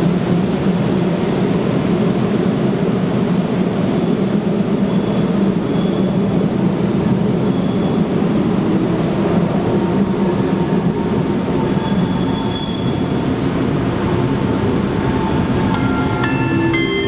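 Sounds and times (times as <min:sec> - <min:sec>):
train wheels rumbling: 0:00.0 - 0:17.0
high-pitched wheel squeals: 0:02.3 - 0:03.6, 0:11.4 - 0:13.4, 0:15.1 - 0:16.1.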